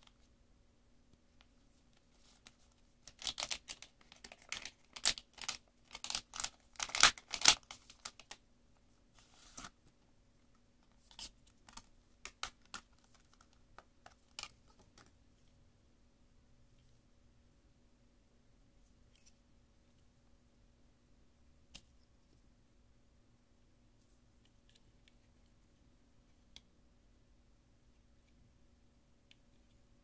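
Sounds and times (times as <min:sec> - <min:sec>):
foil pouch crinkling: 0:03.0 - 0:08.4.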